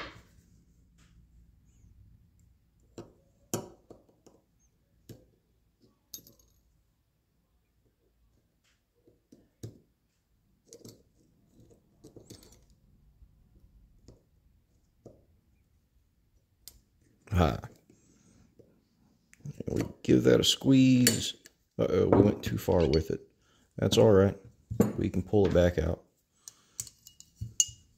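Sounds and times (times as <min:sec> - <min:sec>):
metallic clicks and taps of tools: 0:26.4 - 0:27.8.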